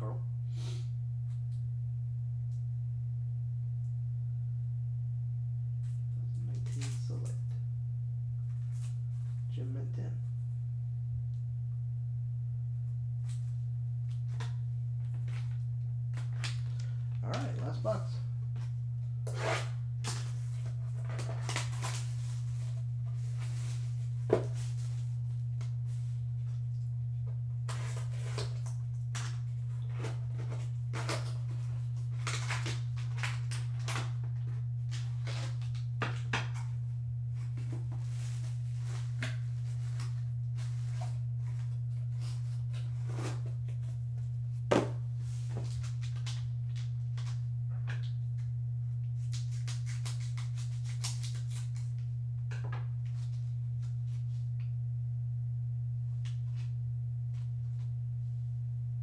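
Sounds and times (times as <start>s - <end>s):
low hum: 0.0s - 59.0s
cardboard and foil rustling: 19.3s - 25.2s, 27.6s - 35.9s, 37.3s - 43.9s.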